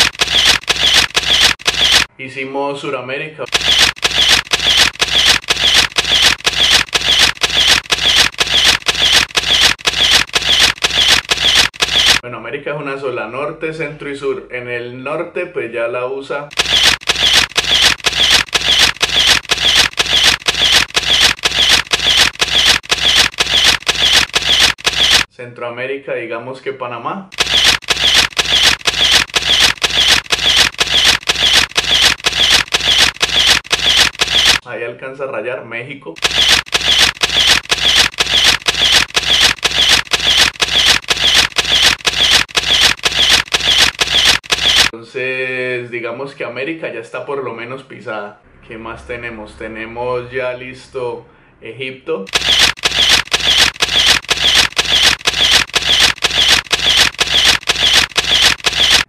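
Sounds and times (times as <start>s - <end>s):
camera shutter click and whirr: 0.0s - 2.1s, 3.5s - 12.2s, 16.5s - 25.3s, 27.3s - 34.6s, 36.2s - 45.0s, 52.3s - 59.0s.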